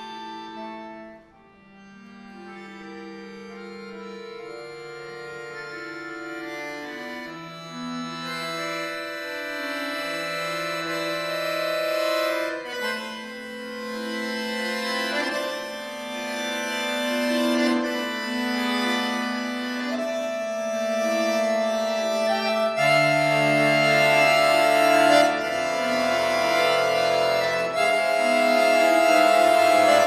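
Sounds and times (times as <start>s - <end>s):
accordion playing sustained chords: 0.0s - 30.0s.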